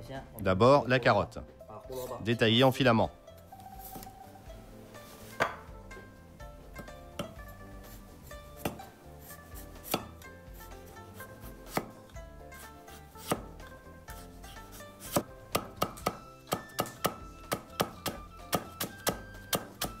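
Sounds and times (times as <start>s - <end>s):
background music: 0.0s - 20.0s
cleaver chopping on wooden block: 6.8s - 7.4s, 8.6s - 8.9s, 9.8s - 10.2s, 11.7s - 12.0s, 13.2s - 13.5s, 15.0s - 20.0s.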